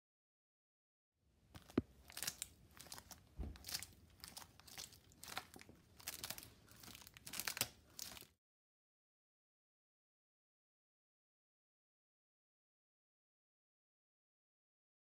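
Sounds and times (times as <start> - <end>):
low thump: 3.4 - 3.7.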